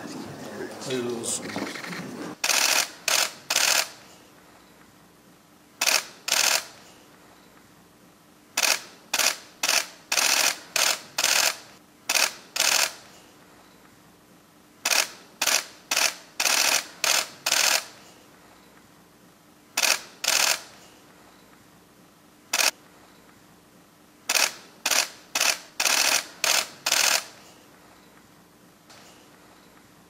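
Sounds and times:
camera shutters clicking: 2.4s - 4.0s, 5.8s - 6.8s, 8.6s - 13.1s, 14.8s - 17.9s, 19.8s - 20.8s, 22.5s - 22.8s, 24.3s - 27.4s.

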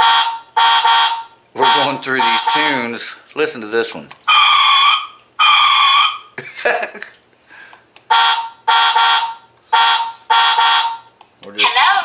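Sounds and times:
doorbell electronic note: 8.1s - 11.0s.

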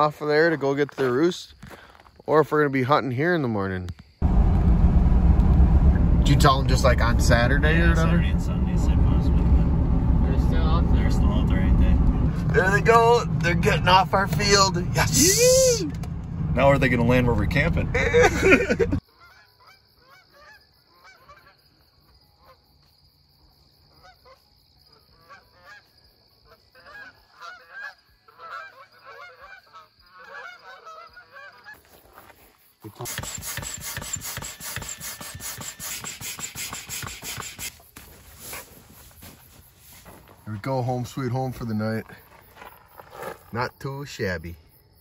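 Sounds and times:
geese honking in flight: 26.5s - 31.8s
rustling noise: 36.7s - 40.5s.

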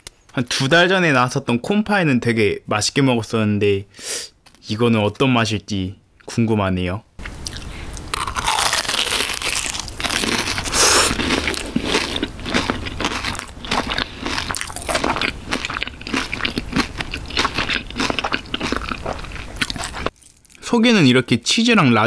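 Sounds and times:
crackly chewing: 7.2s - 20.6s
pastry shell crunching: 7.2s - 20.6s.

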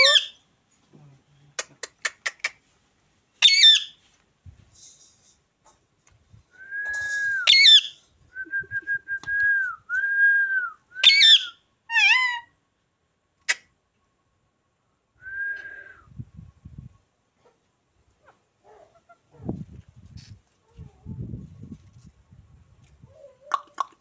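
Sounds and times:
parakeet harsh screeches: 3.4s - 4.0s, 7.4s - 7.9s
parakeet whistling: 7.4s - 7.9s, 11.0s - 11.6s.

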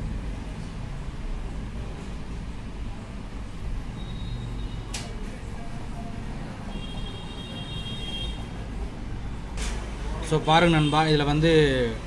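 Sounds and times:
short sharp click: 4.9s - 5.2s.

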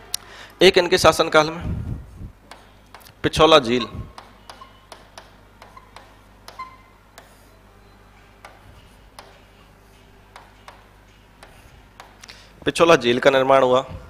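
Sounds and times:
low electrical hum: 0.0s - 14.0s
writing taps and squeaks on board: 4.2s - 7.5s, 8.4s - 9.5s, 10.4s - 12.2s.

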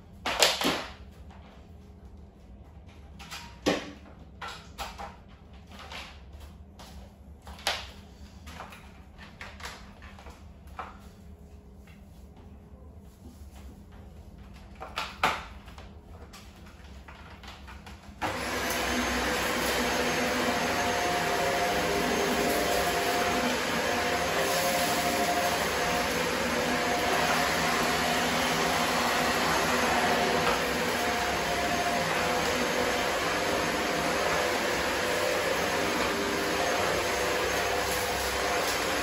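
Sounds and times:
vacuum cleaner running: 18.2s - 39.0s.

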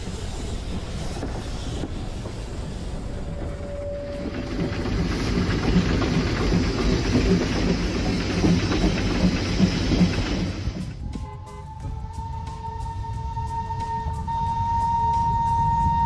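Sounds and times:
steam train running: 0.0s - 16.0s
music: 10.9s - 16.0s.

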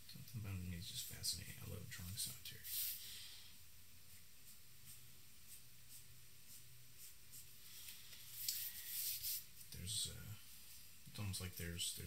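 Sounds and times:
low steady hum: 0.0s - 12.0s
charcoal scratching on paper: 4.1s - 9.7s.

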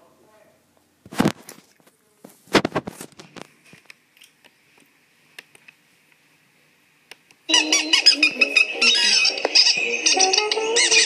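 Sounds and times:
cartoon music: 7.5s - 11.0s
squeaky cartoon voices: 7.5s - 11.0s.

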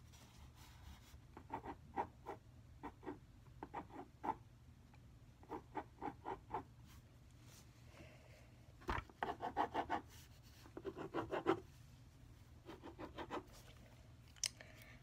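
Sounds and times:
pen scratching on paper: 9.2s - 10.2s, 10.8s - 11.6s, 12.6s - 13.5s.

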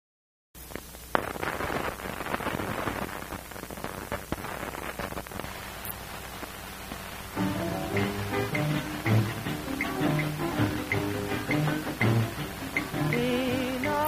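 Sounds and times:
crackles and pops: 0.6s - 11.0s
film soundtrack hiss: 0.6s - 14.0s.

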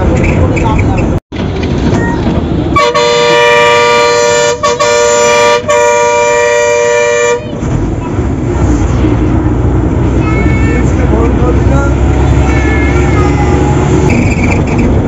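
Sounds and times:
engine and road rumble: 0.0s - 15.0s
vehicle horn blasts: 2.8s - 7.6s.

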